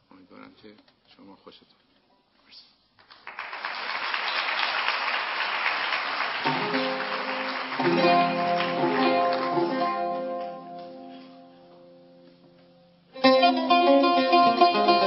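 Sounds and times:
audience applause: 0:03.0 - 0:10.8
plucked oud melody: 0:07.8 - 0:11.4, 0:13.2 - 0:15.0.

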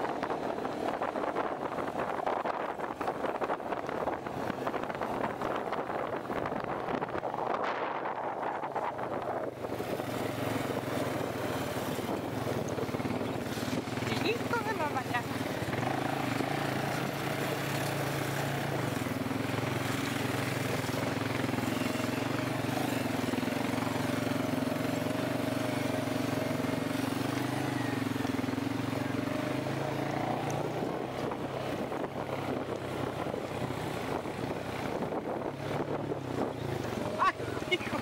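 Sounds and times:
atv engine running: 0:00.0 - 0:38.0.

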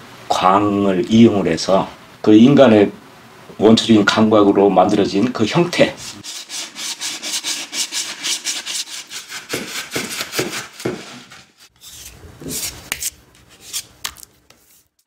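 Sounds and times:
rubbing strokes on hard surface: 0:05.7 - 0:13.9, 0:14.5 - 0:15.0.

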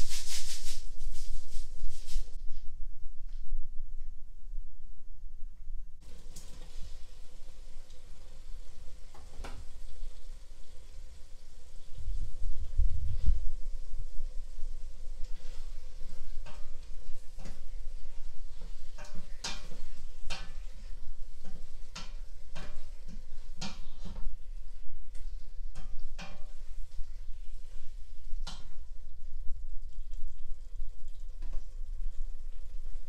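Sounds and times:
low steady hum: 0:00.0 - 0:33.0
spoon scraping metal pot: 0:15.3 - 0:24.4.

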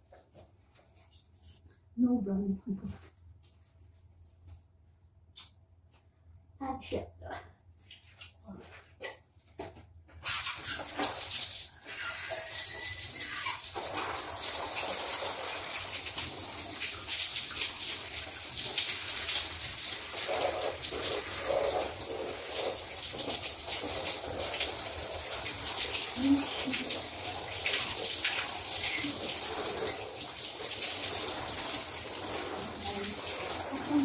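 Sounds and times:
shower water running: 0:10.2 - 0:34.0.

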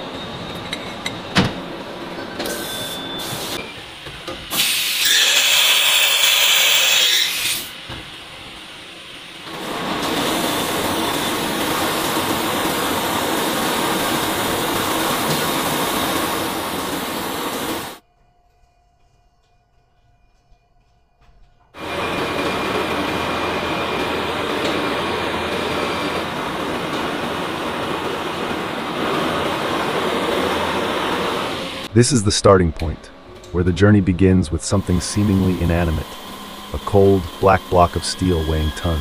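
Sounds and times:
loud hiss: 0:04.5 - 0:07.8, 0:34.6 - 0:39.0
steel machining noise: 0:04.6 - 0:07.7, 0:33.6 - 0:39.0.

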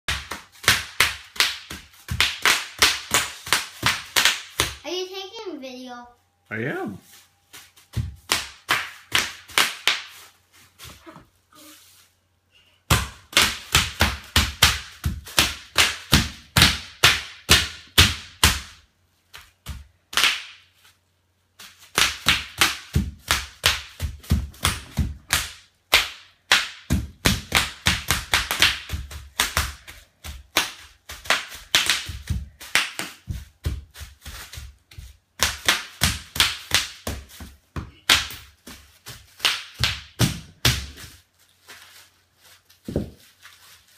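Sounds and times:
bubble wrap popping: 0:26.4 - 0:43.9.

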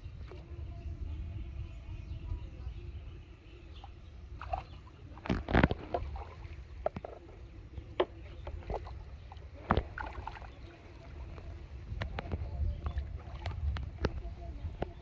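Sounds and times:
fish splashing in water: 0:04.3 - 0:07.4, 0:08.0 - 0:14.4.

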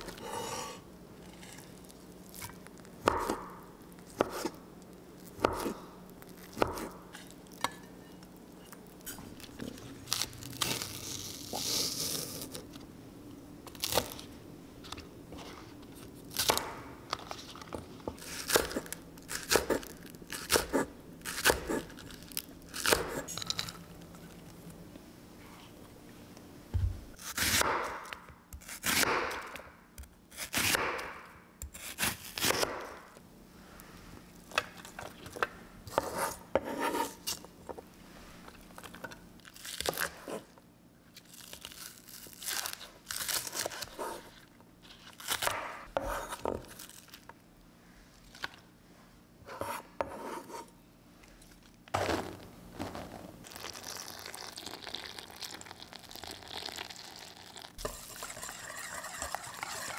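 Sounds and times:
short tearing and scraping strokes: 0:57.8 - 0:59.9.

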